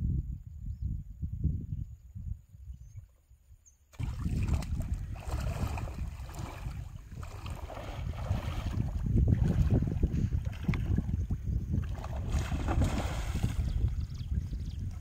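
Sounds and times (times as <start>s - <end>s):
wind buffeting microphone: 0.0s - 3.1s, 4.0s - 15.0s
water sloshing around wading person: 4.0s - 15.0s.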